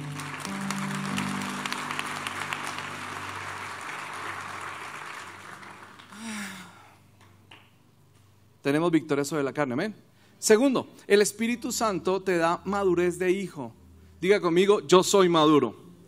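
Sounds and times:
sustained keyboard chord: 0.0 - 4.8
congregation applauding: 0.0 - 6.9.

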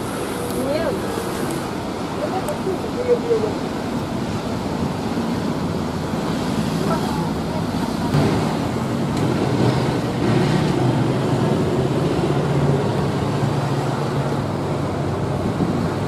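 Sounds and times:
road traffic rumble: 0.0 - 16.0
vehicle engine hum: 0.0 - 16.0.

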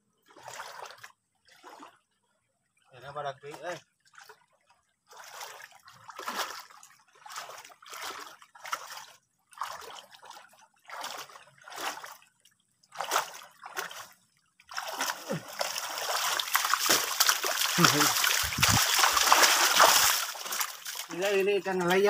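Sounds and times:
hands splashing in muddy water: 5.1 - 22.0.

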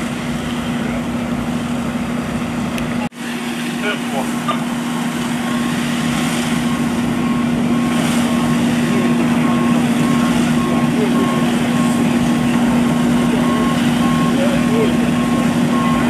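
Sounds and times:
engine humming: 0.0 - 16.0
fire hose spraying water: 0.0 - 16.0
reversing beeper: 3.8 - 16.0.

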